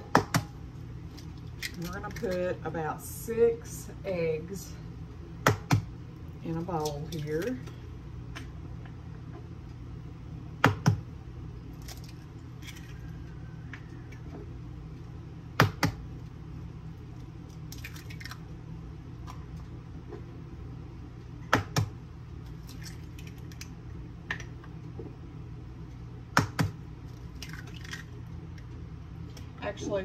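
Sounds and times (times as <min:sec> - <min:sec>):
eggshells crackling: 0:00.9 - 0:02.6, 0:11.7 - 0:14.3, 0:17.0 - 0:18.6, 0:22.4 - 0:24.5, 0:27.0 - 0:28.8.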